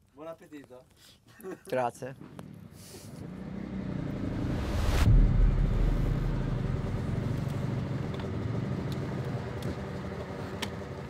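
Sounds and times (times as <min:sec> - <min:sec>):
rushing swell: 0:03.4 - 0:08.7
low rumble: 0:03.5 - 0:08.9
deep boom: 0:03.8 - 0:08.6.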